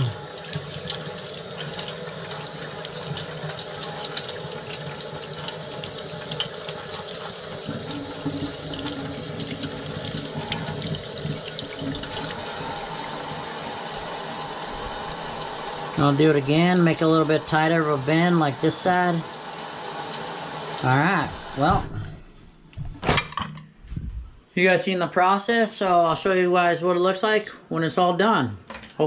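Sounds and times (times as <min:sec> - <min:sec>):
faucet running into metal sink: 0:00.0 - 0:21.9.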